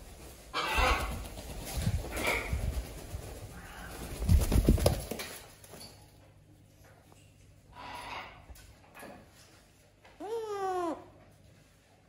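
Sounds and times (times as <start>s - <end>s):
bird wings flapping: 0.0s - 5.6s.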